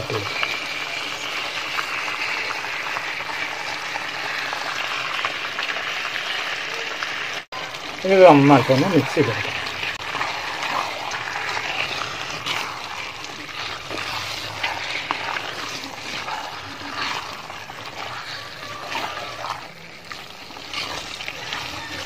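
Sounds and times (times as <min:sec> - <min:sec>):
wet sloshing of stirred meat: 0:07.0 - 0:22.0
spatula clicks and scrapes: 0:09.5 - 0:22.0.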